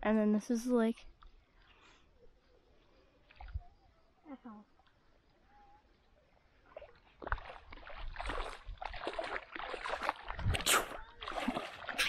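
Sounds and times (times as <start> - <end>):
water splashing and sloshing: 6.1 - 12.0.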